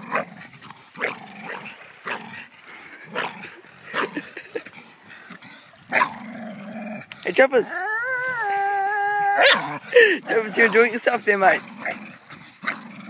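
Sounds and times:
dog barking and yipping: 9.3s - 12.0s.

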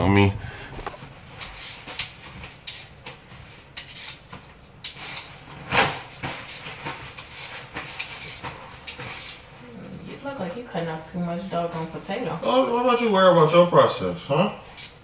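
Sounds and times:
blade scraping potato skin: 3.8s - 9.4s.

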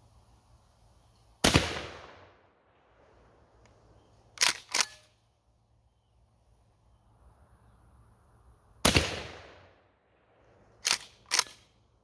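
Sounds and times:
shotgun shot: 1.4s - 2.4s, 8.8s - 9.8s
shotgun pump action clacks: 4.4s - 5.1s, 10.8s - 11.7s.

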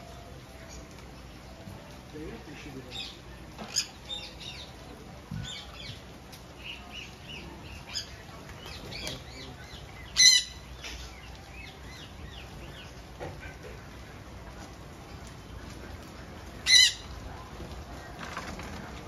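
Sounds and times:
parakeets chirping: 0.0s - 18.2s
harsh parrot squawk: 16.7s - 17.0s.

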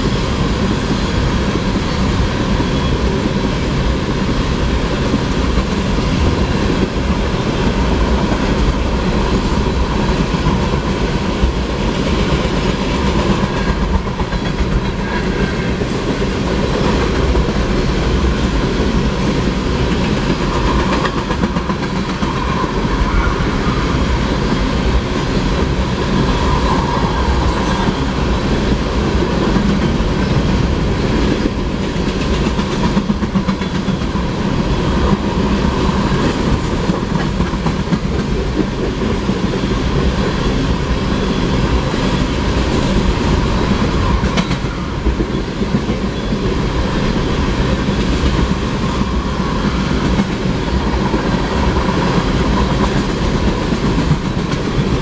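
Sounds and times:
train wheels clattering on rails: 0.0s - 55.0s.

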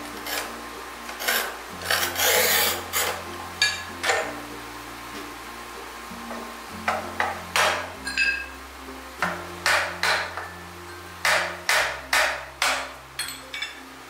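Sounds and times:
tile cutter strokes on ceramic: 0.0s - 3.2s
ceramic ring: 1.2s - 4.4s, 6.9s - 8.6s, 13.2s - 13.9s.

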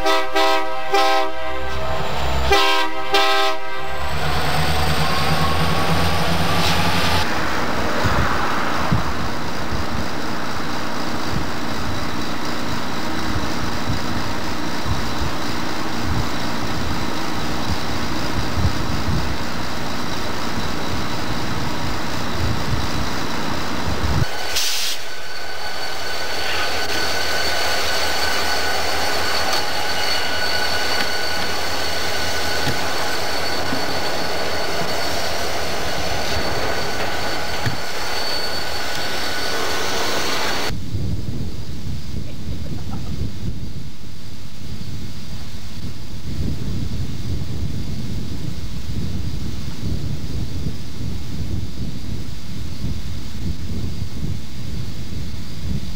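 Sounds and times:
locomotive horn: 0.0s - 4.3s
train wheels rumbling and clattering: 0.0s - 43.7s
locomotive high whine: 0.0s - 55.9s.

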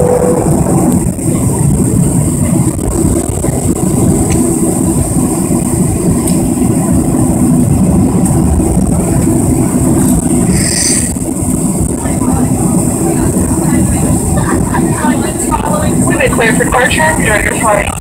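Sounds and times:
thin high whine: 0.0s - 1.3s
jet engines low rumble: 0.0s - 18.0s.

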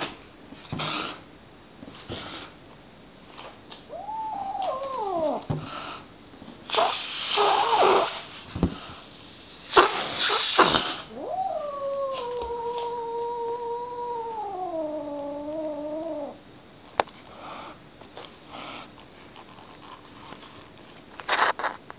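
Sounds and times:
kitten meowing: 3.9s - 5.5s, 10.7s - 16.4s.

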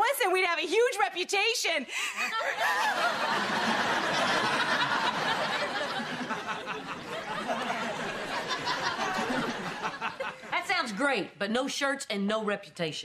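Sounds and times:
studio audience laughing: 2.2s - 10.6s.

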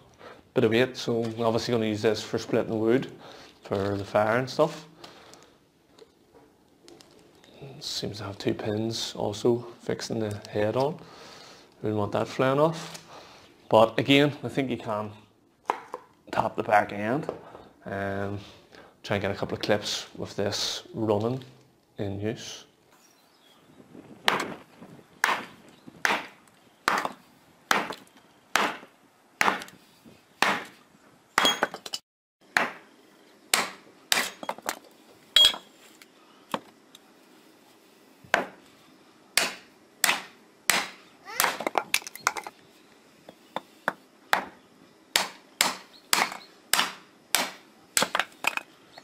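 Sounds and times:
hatchets chopping logs: 24.3s - 24.6s, 25.2s - 29.8s, 33.5s - 34.6s, 39.4s - 42.2s, 44.3s - 48.4s.

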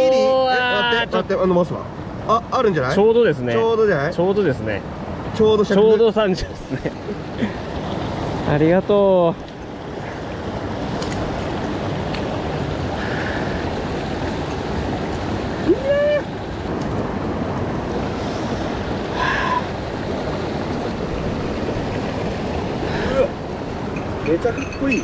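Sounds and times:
mountain stream rushing: 0.0s - 25.0s.

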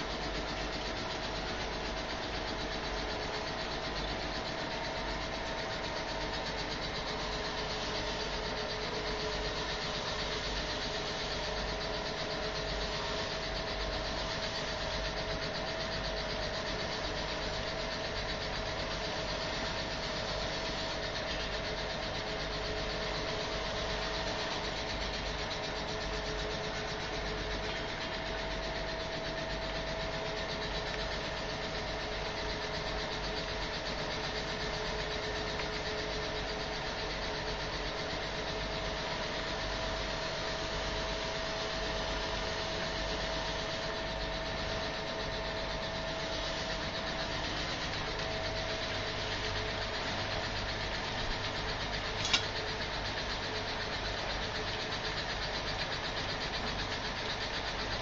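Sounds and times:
machine motors humming: 0.0s - 58.0s
hiss of charcoal discharging: 6.2s - 15.8s.

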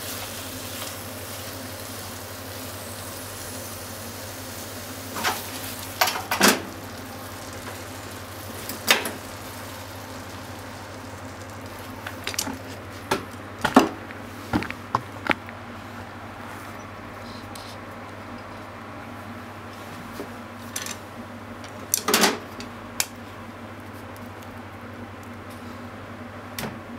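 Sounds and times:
food sizzling in a frying pan: 0.0s - 13.1s.

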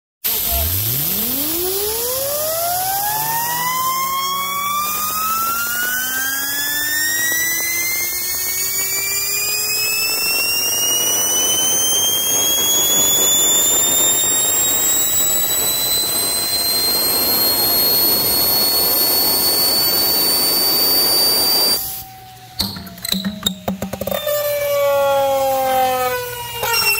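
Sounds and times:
high whine of spinning metal part: 0.3s - 26.9s
compressed air hissing: 7.8s - 22.0s.

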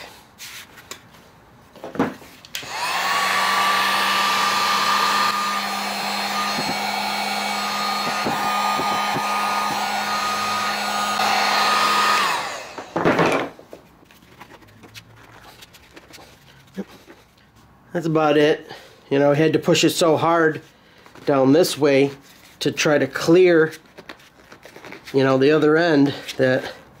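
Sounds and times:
heat gun fan whine: 2.4s - 13.6s.

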